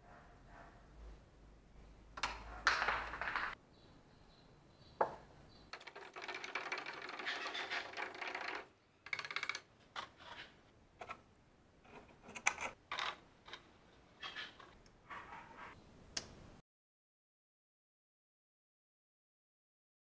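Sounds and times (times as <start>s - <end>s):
metal clicks and knocks in jug: 5.7s - 9.7s.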